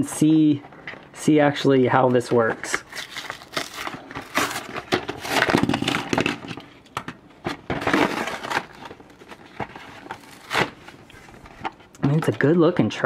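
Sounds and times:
cardboard tearing: 2.7 - 6.7, 7.5 - 11.4.

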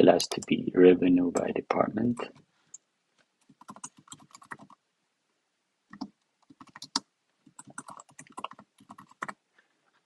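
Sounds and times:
typing on computer keyboard: 3.4 - 4.8, 5.9 - 9.4.

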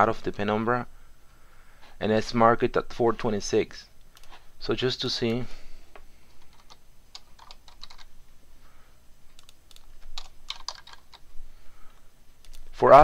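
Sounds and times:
keyboard typing: 6.4 - 8.1, 9.3 - 11.3, 12.4 - 12.7.

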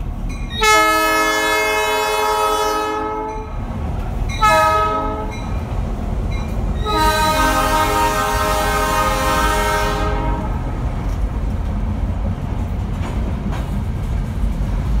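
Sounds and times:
freight train rumbling past: 0.0 - 15.0
locomotive air horn chord: 0.6 - 3.5, 4.4 - 5.4, 6.8 - 10.6
wheels clacking over rail joints: 3.1 - 7.8, 10.1 - 15.0.

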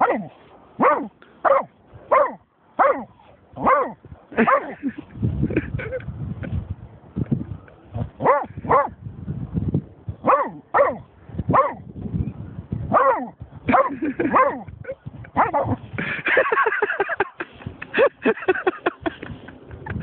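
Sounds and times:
dog barking: 0.0 - 4.8, 8.2 - 9.0, 10.2 - 11.8, 12.9 - 14.7, 15.4 - 15.8.

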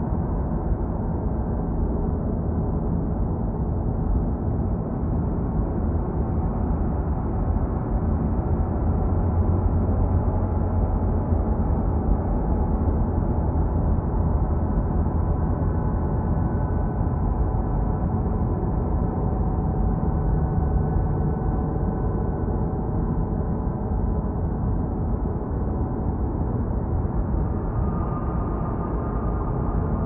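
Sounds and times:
dark ambient drone music: 24.4 - 30.0.

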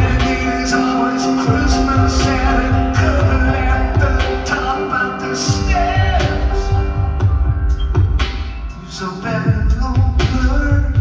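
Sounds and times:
man singing: 0.0 - 7.2, 8.7 - 11.0
grand piano: 0.0 - 11.0.

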